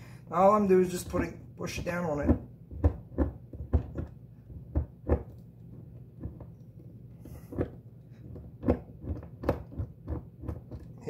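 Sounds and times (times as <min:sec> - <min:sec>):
low steady hum: 0:00.0 - 0:11.0
impact screwdriver knocks: 0:02.2 - 0:05.4, 0:07.5 - 0:10.9.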